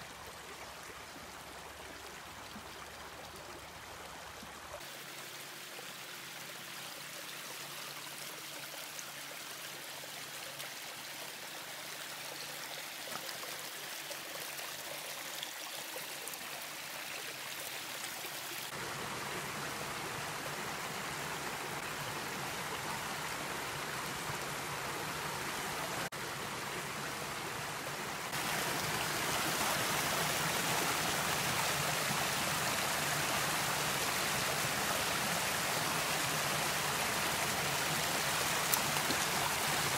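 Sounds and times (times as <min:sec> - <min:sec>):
creek water rushing over stones: 0:00.0 - 0:39.9.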